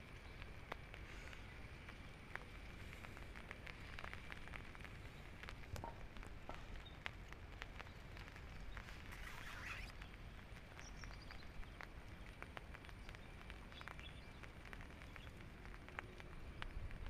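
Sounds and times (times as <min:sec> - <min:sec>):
light ticks of falling drops: 0:00.0 - 0:17.0
wind rumble on microphone: 0:00.0 - 0:17.0
faint bird chirps: 0:07.8 - 0:11.8.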